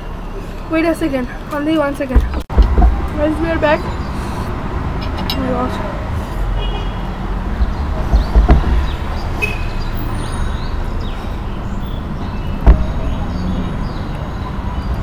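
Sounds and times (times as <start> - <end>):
knocks: 2.1 - 3.0, 7.6 - 9.0, 12.6 - 13.0.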